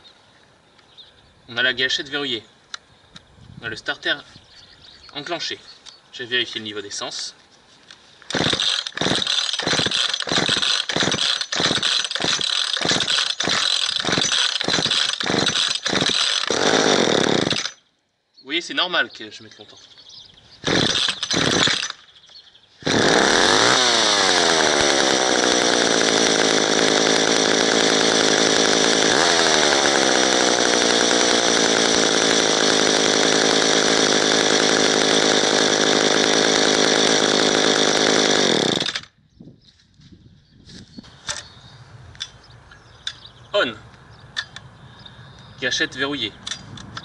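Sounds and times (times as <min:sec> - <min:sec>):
chainsaw engine running: 0:08.3 - 0:17.8, 0:20.6 - 0:22.0, 0:22.8 - 0:39.2
starter cord pulls: 0:08.3 - 0:17.8, 0:20.6 - 0:22.0.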